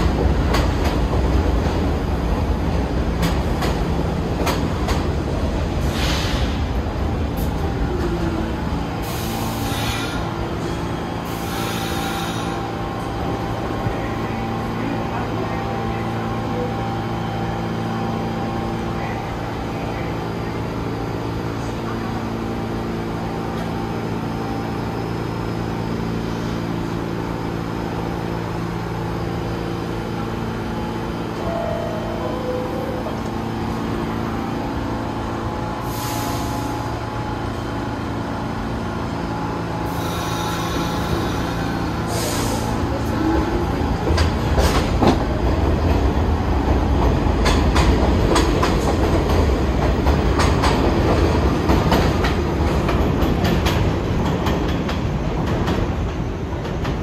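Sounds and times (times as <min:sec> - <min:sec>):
subway train electrical hum: 0:00.0 - 0:57.0
brake air hisses: 0:09.0 - 0:10.3.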